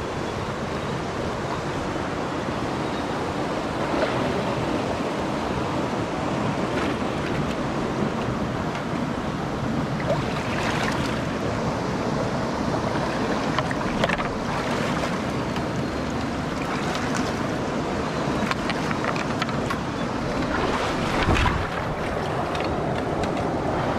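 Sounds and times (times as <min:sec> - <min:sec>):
stream rushing over rocks: 0:09.9 - 0:23.9
boots splashing in water: 0:20.3 - 0:22.5.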